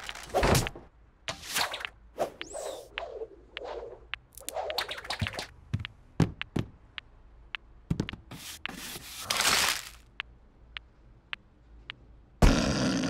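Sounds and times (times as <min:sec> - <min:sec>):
paper rustling: 0:08.7 - 0:10.1.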